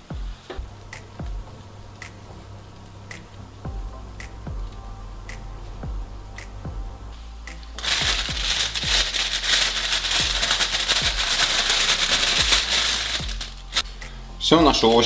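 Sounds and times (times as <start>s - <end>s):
background music: 0.0s - 15.0s
plastic bag crinkling: 7.8s - 13.9s.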